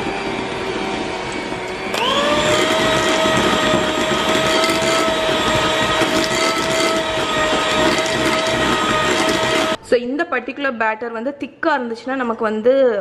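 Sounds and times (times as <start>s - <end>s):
electric hand mixer whining: 0.0s - 9.8s.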